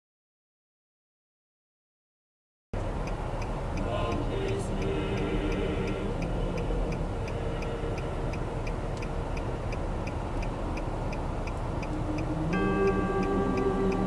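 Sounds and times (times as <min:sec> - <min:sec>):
low constant rumble: 0:02.8 - 0:14.0
steady ticking: 0:02.8 - 0:14.0.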